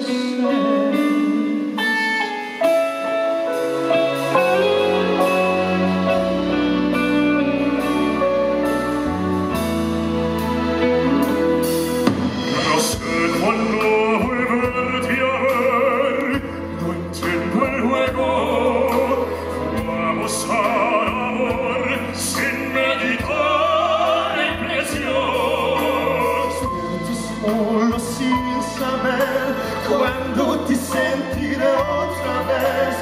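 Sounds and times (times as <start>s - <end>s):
keyboard and band accompaniment: 0.0s - 33.0s
man singing operatic ballad: 12.4s - 33.0s.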